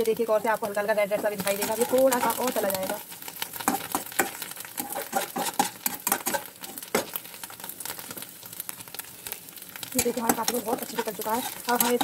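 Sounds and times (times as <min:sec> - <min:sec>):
light sizzle: 0:00.0 - 0:12.0
spatula scraping a pan: 0:01.1 - 0:07.2, 0:10.0 - 0:12.0.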